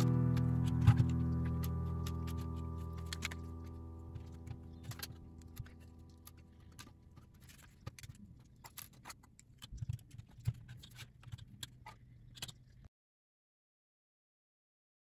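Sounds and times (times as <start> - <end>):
background music: 0.0 - 6.9.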